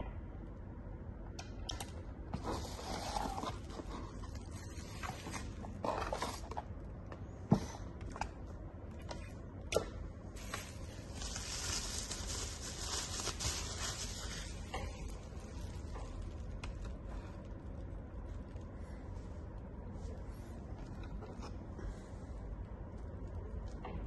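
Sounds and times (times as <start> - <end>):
low steady hum: 0.0 - 24.0
packaging rustling: 10.4 - 17.0.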